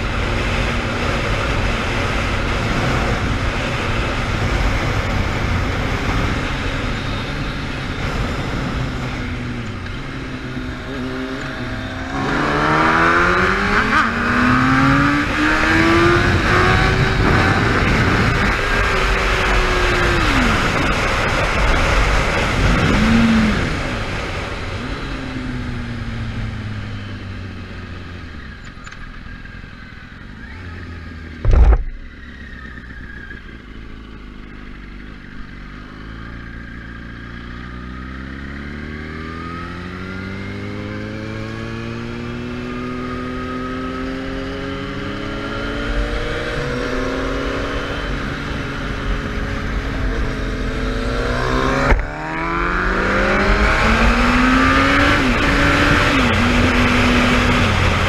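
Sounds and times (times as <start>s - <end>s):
wind rush: 0.0s - 24.7s
motorcycle engine revving: 0.0s - 58.0s.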